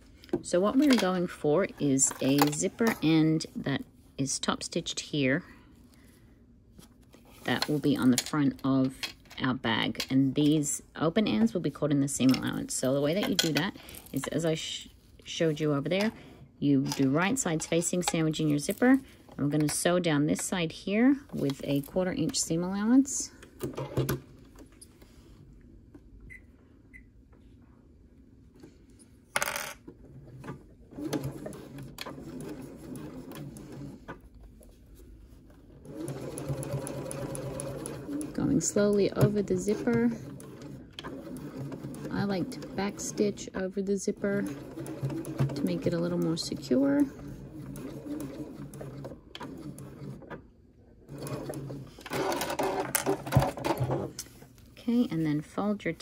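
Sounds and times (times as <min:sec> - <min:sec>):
sewing machine stitching: 0:30.0 - 0:34.2, 0:35.7 - 0:50.4, 0:51.0 - 0:54.2.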